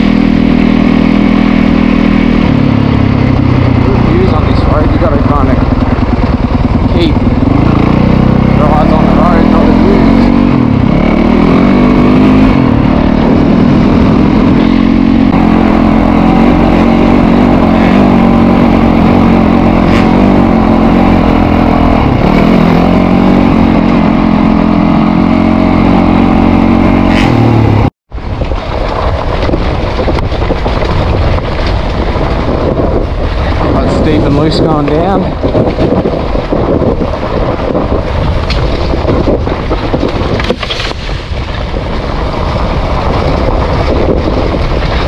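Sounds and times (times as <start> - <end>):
dirt bike engine revving: 0.0 - 27.9.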